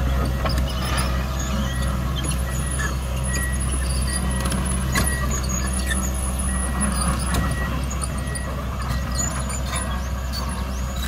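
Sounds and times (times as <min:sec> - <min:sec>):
excavator diesel engine droning: 0:00.0 - 0:11.0.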